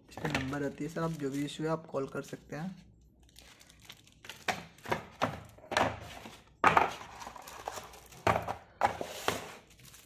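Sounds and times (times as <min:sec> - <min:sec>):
objects knocking on desk: 0:04.5 - 0:07.0, 0:08.2 - 0:09.4.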